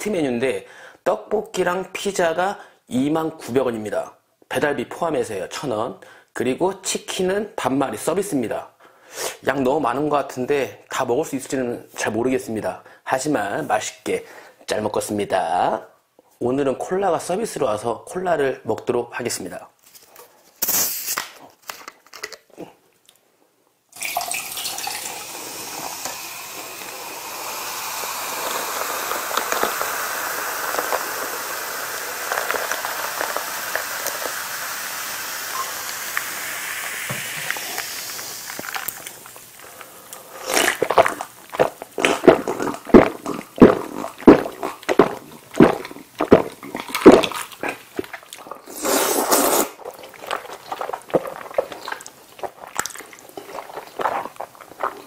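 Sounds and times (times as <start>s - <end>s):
cola fizzing pour over ice: 24.0s - 39.4s
wet slurping and chewing: 24.8s - 55.0s.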